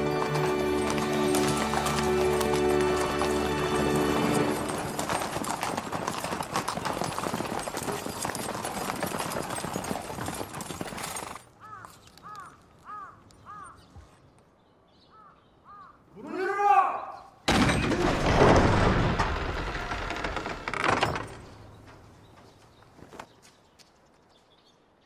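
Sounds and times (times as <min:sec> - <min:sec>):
horses' hooves trotting on paving: 0:00.0 - 0:12.4.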